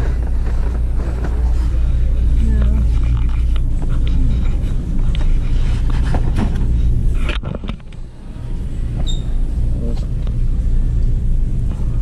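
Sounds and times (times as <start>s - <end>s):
shopping cart wheels rumbling: 0.0s - 7.3s.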